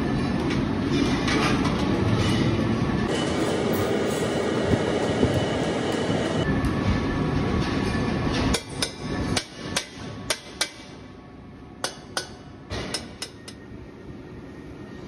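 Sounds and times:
mechanical rumble: 0:02.7 - 0:08.2.

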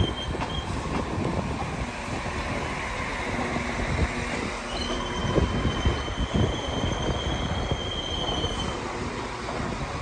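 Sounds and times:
train wheel squeal: 0:00.0 - 0:00.9, 0:04.6 - 0:08.9
train wheels rumbling and knocking: 0:00.0 - 0:10.0.

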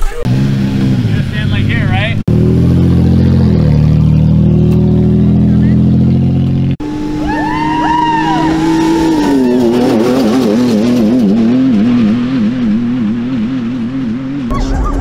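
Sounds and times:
truck engine running: 0:00.0 - 0:15.0
group whooping: 0:07.2 - 0:10.4.

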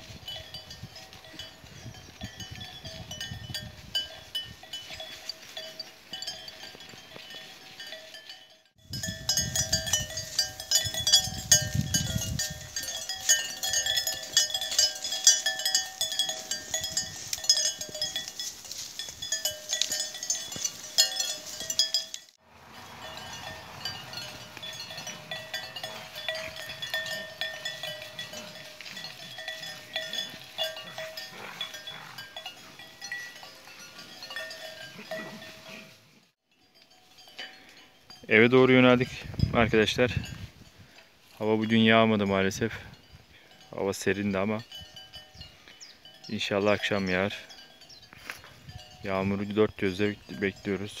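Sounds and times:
cattle bells clanking: 0:00.0 - 0:51.0.

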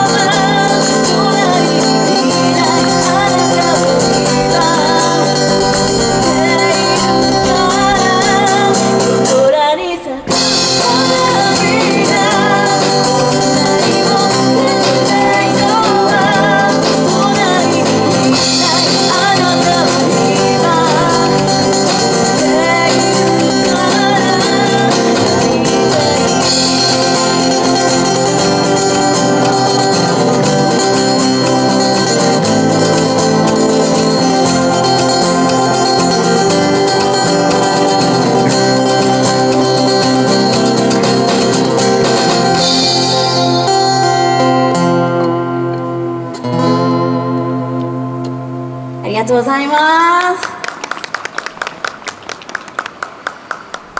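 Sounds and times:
woman singing pop ballad: 0:00.0 - 0:40.5
strummed acoustic guitars: 0:00.0 - 0:49.4.

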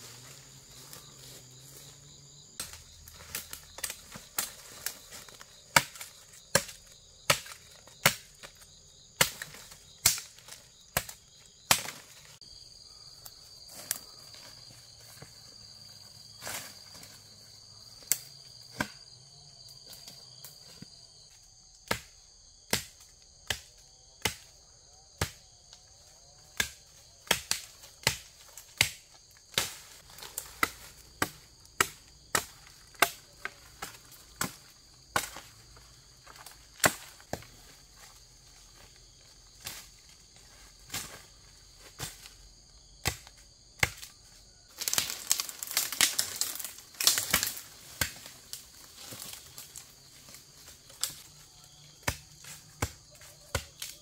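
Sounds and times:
insects shrilling: 0:44.6 - 0:54.0
dry wood breaking: 0:44.7 - 0:49.9.

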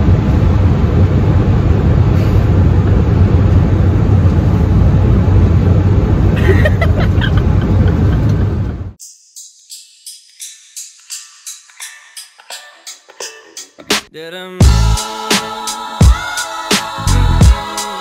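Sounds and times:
jet engines rumbling in cabin: 0:00.0 - 0:09.0
rushing air: 0:00.0 - 0:09.0.

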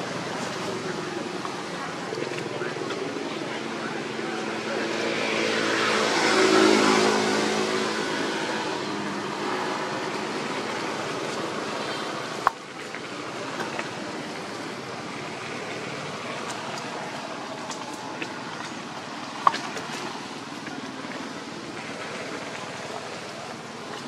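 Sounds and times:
outdoor background noise: 0:00.0 - 0:24.0
motorbike passing by: 0:01.8 - 0:17.5.

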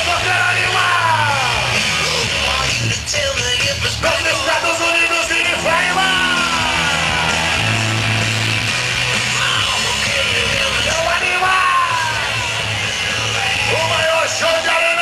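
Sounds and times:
loud rock music: 0:00.0 - 0:15.0
long held bass notes: 0:04.0 - 0:11.2.

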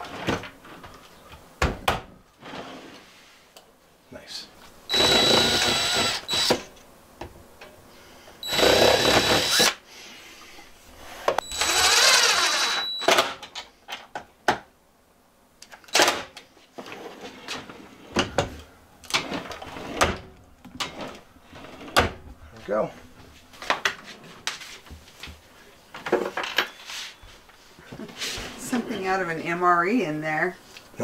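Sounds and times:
cordless drill whining: 0:04.9 - 0:06.7, 0:08.4 - 0:09.8, 0:11.4 - 0:13.3.

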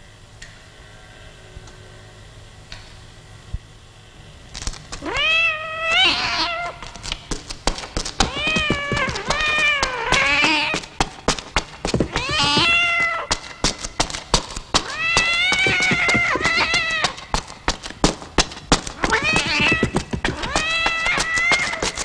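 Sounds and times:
footsteps on stone floor: 0:04.6 - 0:22.0
cat yowling: 0:05.0 - 0:06.8, 0:08.2 - 0:10.8, 0:12.1 - 0:13.3, 0:14.8 - 0:17.2, 0:19.0 - 0:22.0.

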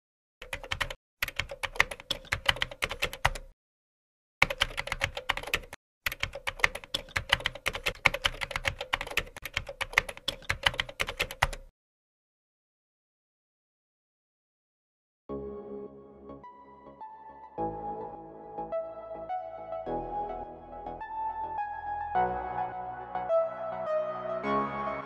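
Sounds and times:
rapid keyboard typing: 0:00.4 - 0:03.5, 0:04.4 - 0:11.7.

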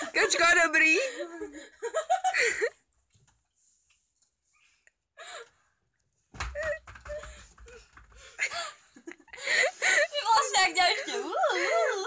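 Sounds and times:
girl whimpering and giggling: 0:08.4 - 0:12.0.

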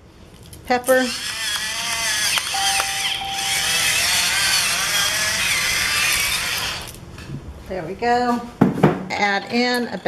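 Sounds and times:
pepper mill grinding: 0:03.4 - 0:07.0.

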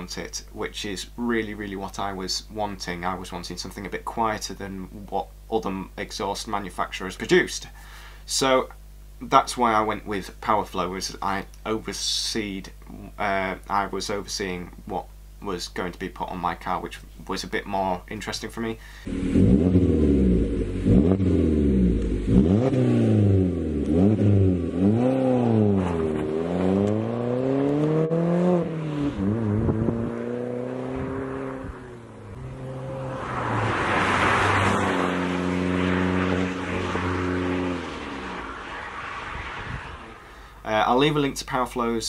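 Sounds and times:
car engine accelerating: 0:19.0 - 0:40.6
rush of noise: 0:30.8 - 0:40.8.

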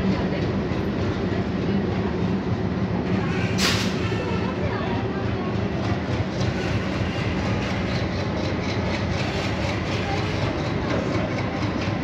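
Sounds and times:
train wheels rumbling: 0:00.0 - 0:12.0
wheels clicking on rails: 0:03.1 - 0:12.0.

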